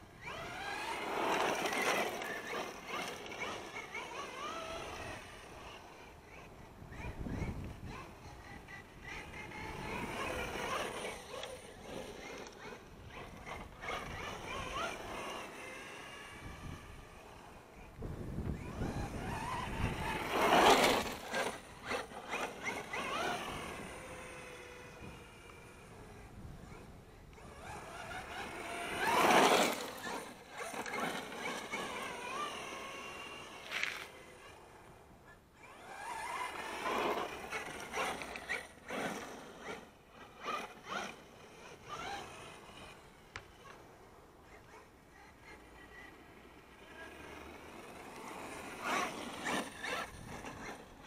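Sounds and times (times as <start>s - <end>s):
electric motor whining: 0.0s - 51.0s
tyre noise on tarmac: 33.1s - 34.2s.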